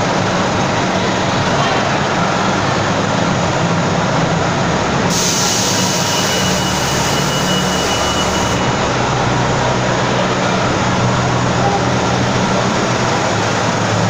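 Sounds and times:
bus engines humming: 0.0 - 14.0
hiss with high whistle: 5.1 - 8.6.

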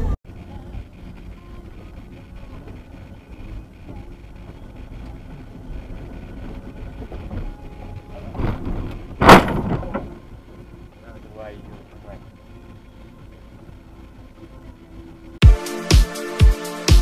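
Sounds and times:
clatter: 0.0 - 10.5
engine and road noise: 0.0 - 17.0
car crash: 7.0 - 10.4
bang: 8.4 - 10.2.

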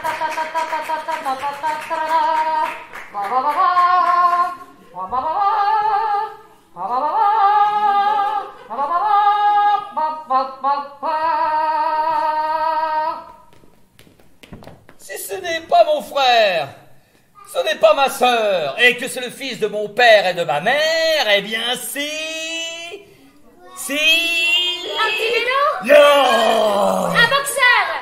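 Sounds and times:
woman singing through a horn: 0.0 - 13.3.

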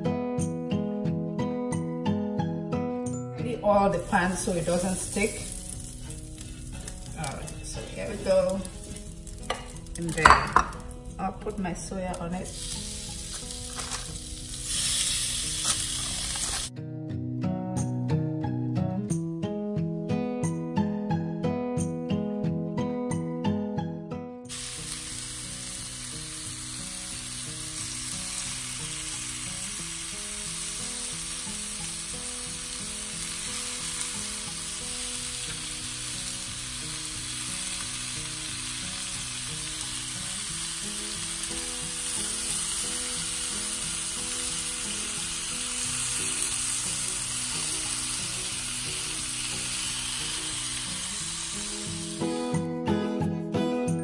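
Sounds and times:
faint music: 3.1 - 16.9
meat sizzling on a grill pan: 3.8 - 16.7, 24.5 - 52.5.

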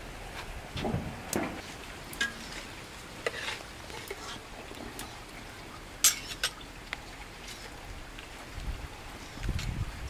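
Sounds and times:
metal ladle stirring soup in pot: 2.1 - 5.2, 6.0 - 6.6.

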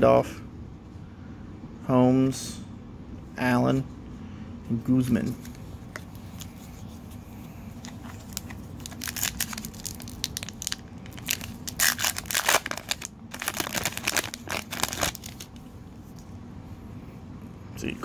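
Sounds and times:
plastic wrapper tearing and crinkling: 7.8 - 15.6.

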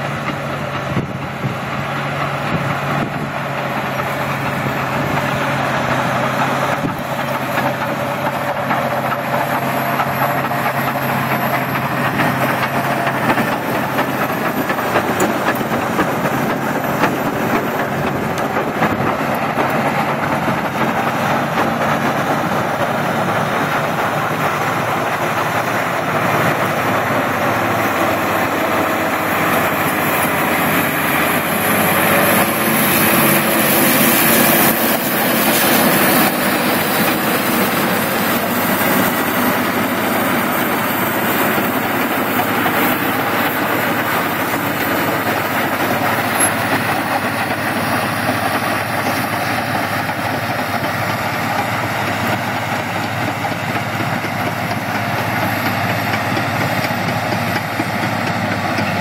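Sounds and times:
diesel tractor engine under load: 0.0 - 59.0
tracks clattering: 0.0 - 59.0.

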